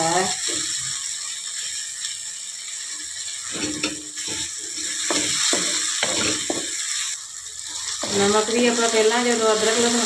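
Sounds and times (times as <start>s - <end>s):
masala sizzling in oil: 0.0s - 10.0s
wooden spatula scraping a pan: 3.5s - 6.8s.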